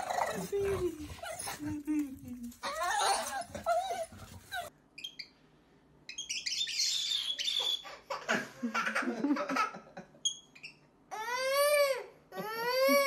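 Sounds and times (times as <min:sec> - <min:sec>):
baby laughing: 0:07.7 - 0:10.0.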